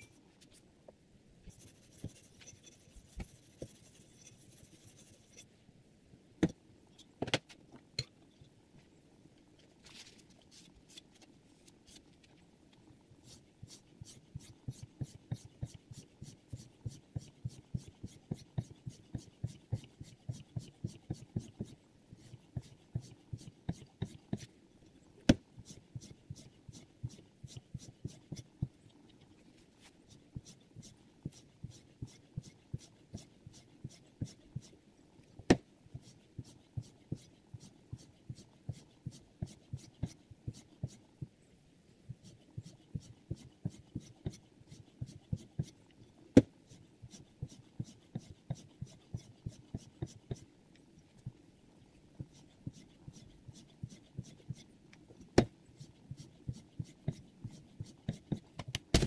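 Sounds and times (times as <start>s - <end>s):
stone scraping knife blade: 3.7s - 5.5s.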